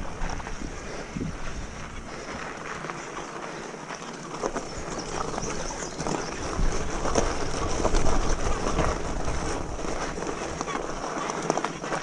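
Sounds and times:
wind rumble on microphone: 0:00.0 - 0:02.7, 0:04.6 - 0:11.0
bike tyres crunching on gravel: 0:00.0 - 0:12.0.

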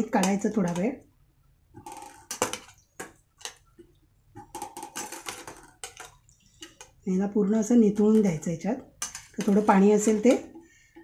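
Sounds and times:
steel spoon scraping a steel bowl: 0:09.0 - 0:10.4.

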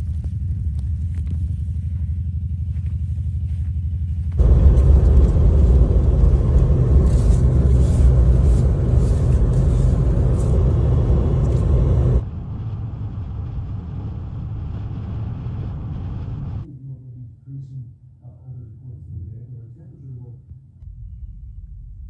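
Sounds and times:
car cabin road and wind rumble: 0:03.9 - 0:16.6.

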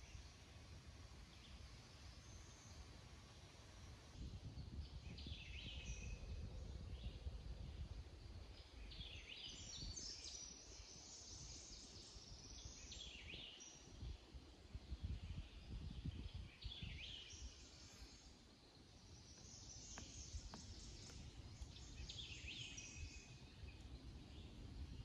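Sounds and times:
songbirds chirping: 0:00.0 - 0:25.0.

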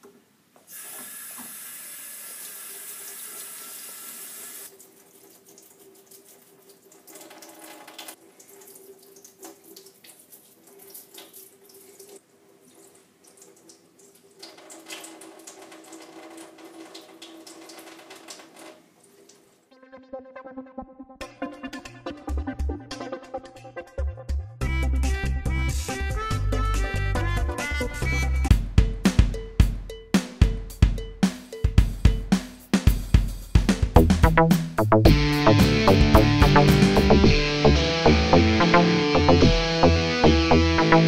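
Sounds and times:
tap water running into sink: 0:00.7 - 0:19.5.

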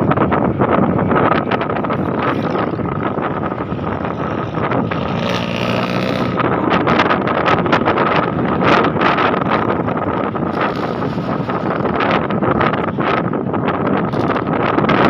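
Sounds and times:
street traffic road noise: 0:00.0 - 0:15.0
wind buffeting microphone: 0:00.0 - 0:15.0
motorbike engine running: 0:01.4 - 0:13.1.

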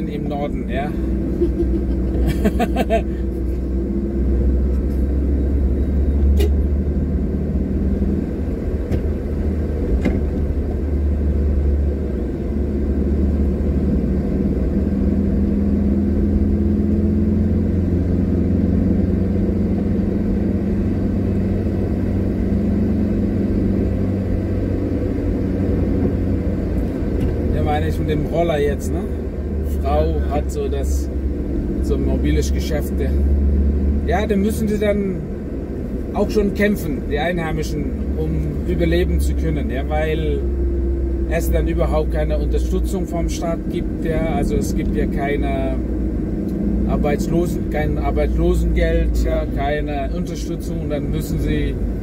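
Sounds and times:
car interior road rumble: 0:00.0 - 0:52.0.

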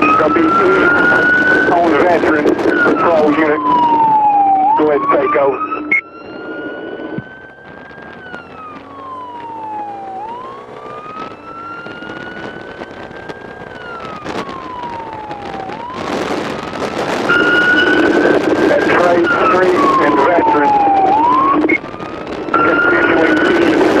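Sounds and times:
motorcycle siren wailing: 0:00.0 - 0:24.0
motorcycle engine running: 0:07.2 - 0:16.0.

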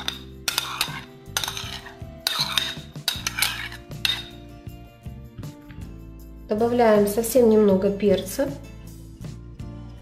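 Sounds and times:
metal spoon scraping bowl: 0:00.0 - 0:04.5
soft background music: 0:00.0 - 0:10.0.

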